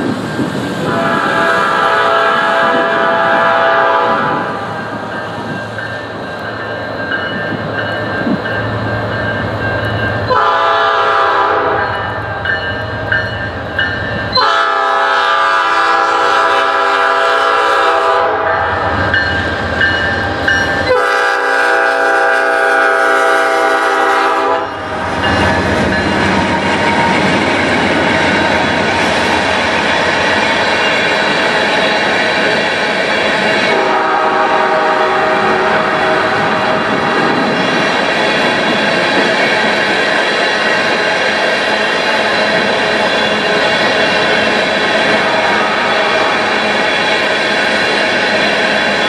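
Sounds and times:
locomotive horn blasts: 0.8s - 4.6s, 10.3s - 12.0s, 14.3s - 18.9s, 20.8s - 25.0s, 33.7s - 37.3s, 45.1s - 46.4s
train wheels clattering over rails: 23.8s - 49.0s.

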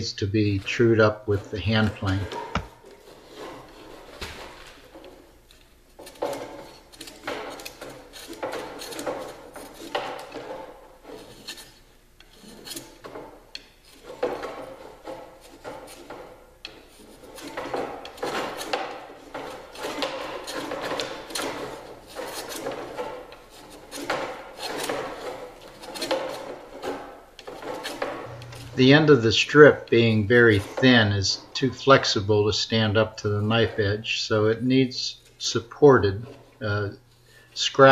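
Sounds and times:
hand plane shaving wood: 0.6s - 4.6s, 6.0s - 13.1s, 13.9s - 31.7s.

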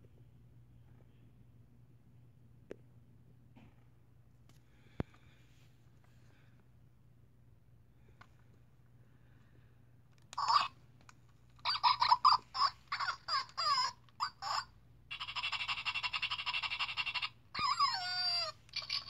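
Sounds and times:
toy dog yapping: 10.3s - 10.8s, 11.6s - 19.0s
toy dog quick yips: 10.4s - 10.7s, 11.6s - 19.0s.

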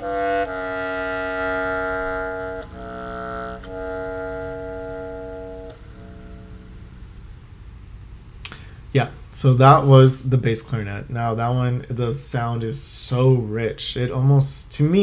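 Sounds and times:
bass clarinet playing: 0.0s - 7.4s.

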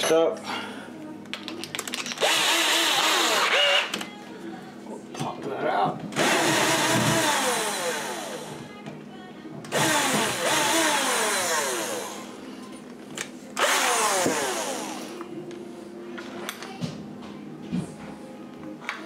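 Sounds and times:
cordless drill whining: 2.2s - 4.0s, 9.7s - 12.3s, 13.6s - 15.2s.

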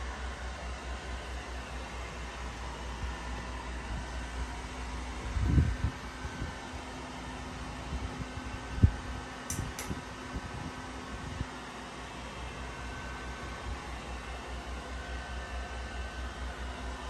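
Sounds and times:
blower fan running: 0.0s - 17.0s.

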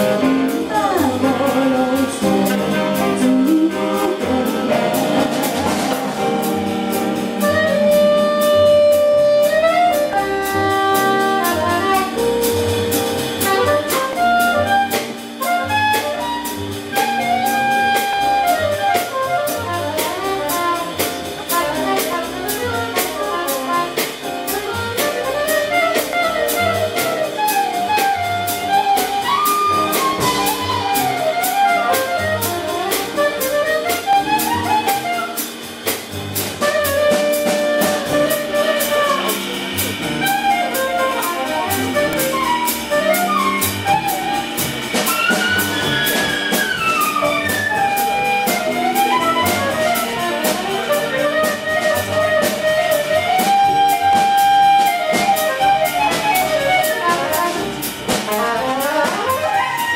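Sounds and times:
jazz big band playing: 0.0s - 59.9s
cymbal beat: 32.5s - 52.2s.

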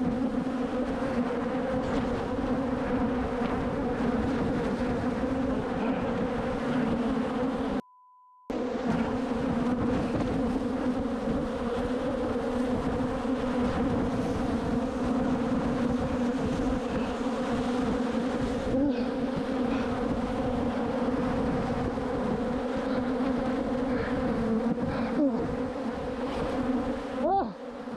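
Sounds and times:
bees buzzing: 0.0s - 7.8s, 8.5s - 27.9s
faint beep: 7.8s - 8.5s.

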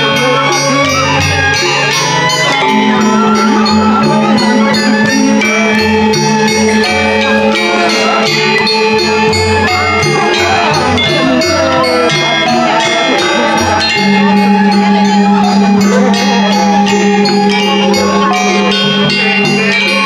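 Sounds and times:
music with bell-like tones: 0.0s - 20.0s.

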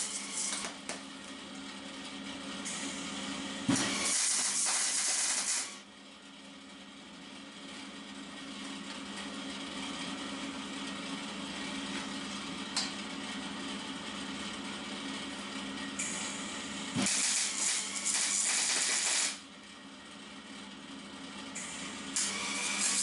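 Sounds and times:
welding arc crackling: 0.0s - 0.8s, 3.8s - 5.8s, 17.0s - 19.4s, 22.2s - 23.0s.

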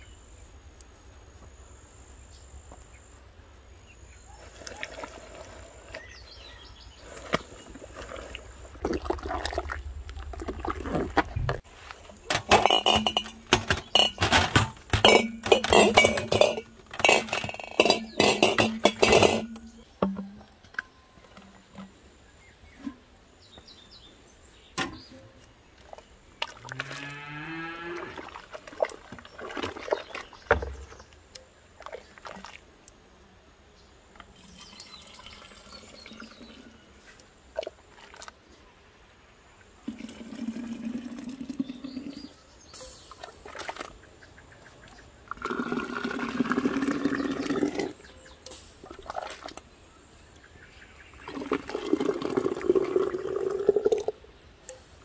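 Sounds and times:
juice pouring into jar: 4.4s - 6.1s, 7.0s - 11.5s, 34.4s - 36.7s, 39.8s - 42.3s, 45.3s - 48.0s, 51.2s - 54.2s
ladle clinking against funnel: 12.2s - 20.4s.

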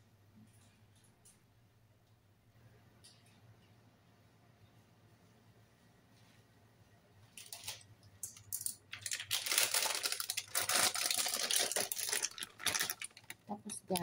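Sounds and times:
plastic packet crinkling: 7.4s - 14.0s.

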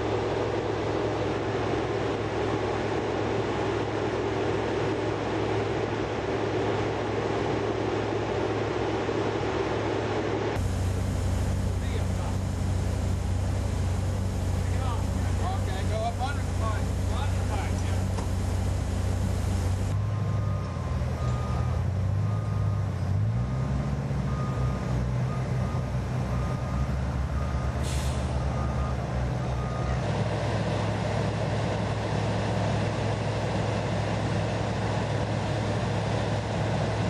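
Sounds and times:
crane diesel engine running: 0.0s - 37.0s
hiss of air: 27.8s - 28.4s.

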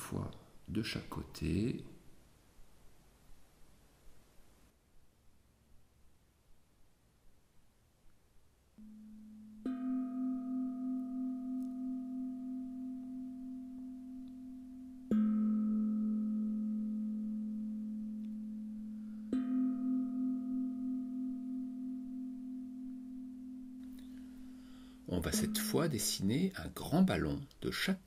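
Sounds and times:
singing bowl ringing: 8.8s - 26.4s.

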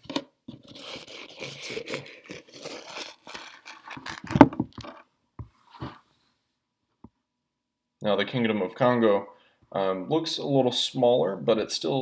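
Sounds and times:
rustling and scraping: 2.6s - 6.2s.

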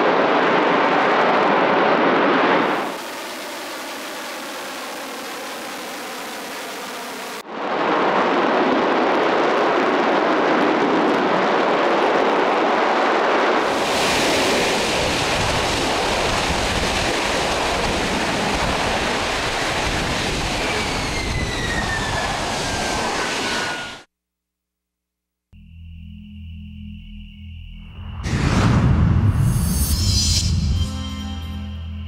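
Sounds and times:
falling engine whine: 0.0s - 24.1s
jet engine roaring: 0.0s - 24.1s.

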